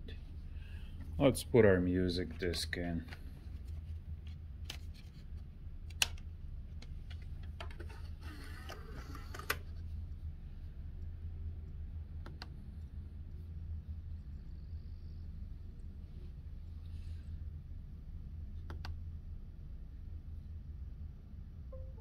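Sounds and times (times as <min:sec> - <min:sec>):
steady low hum: 0:00.0 - 0:22.0
disc sliding into drive: 0:07.8 - 0:09.6.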